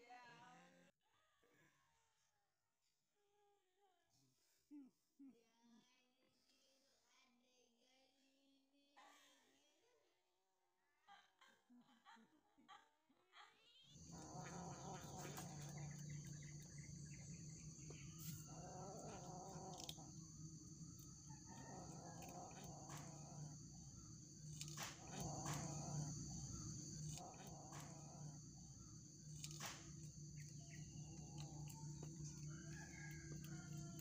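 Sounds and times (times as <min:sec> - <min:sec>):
high insect-like drone: 0:14.0 - 0:34.0
low hum: 0:14.0 - 0:34.0.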